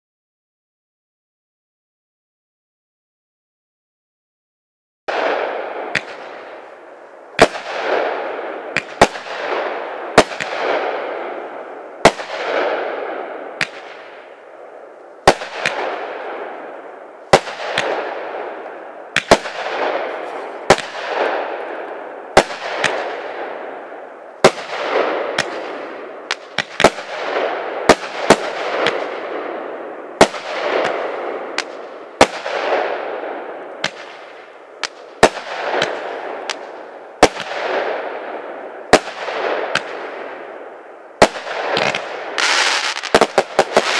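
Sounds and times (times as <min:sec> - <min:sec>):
fireworks bangs: 0:05.1 - 0:43.9
fireworks hiss: 0:20.0 - 0:20.9, 0:41.8 - 0:43.9.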